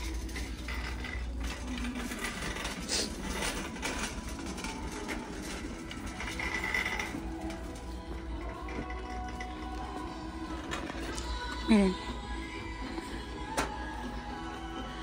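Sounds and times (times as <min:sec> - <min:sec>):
shopping cart rattling on tiles: 0:00.0 - 0:11.2.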